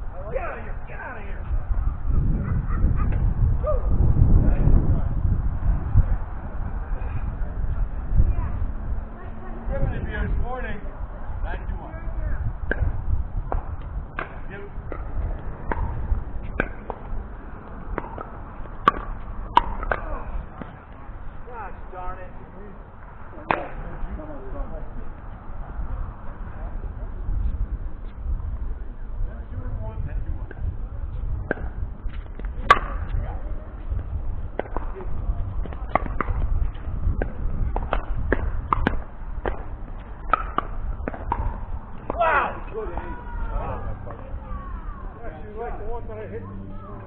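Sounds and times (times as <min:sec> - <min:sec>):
low rumble: 0:00.0 - 0:47.0
paddles striking ball: 0:13.5 - 0:17.1, 0:17.9 - 0:20.8, 0:37.2 - 0:42.2.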